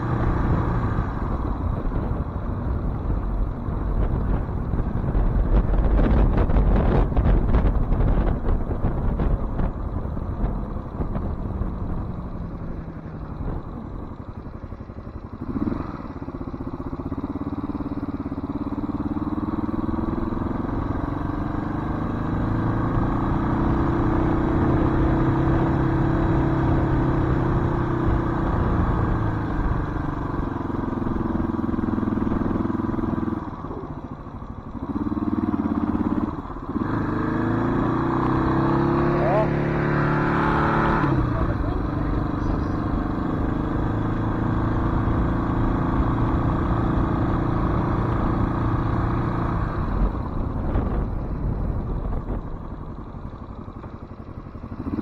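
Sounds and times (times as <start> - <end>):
wind rushing over microphone: 0.0 - 14.2, 34.9 - 53.0
motorcycle engine running: 0.0 - 55.0.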